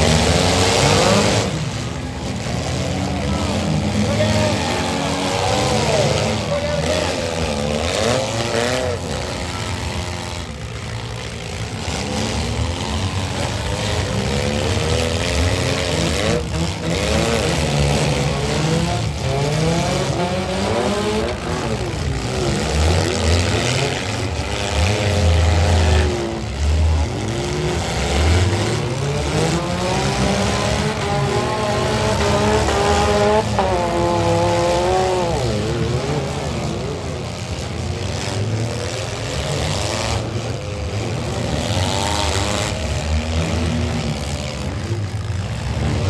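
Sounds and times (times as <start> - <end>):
car engines revving: 0.0 - 46.0.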